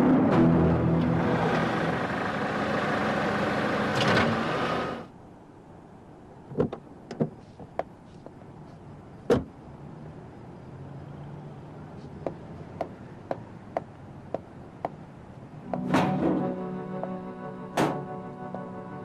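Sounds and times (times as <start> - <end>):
car door slamming shut: 17.8 - 18.1.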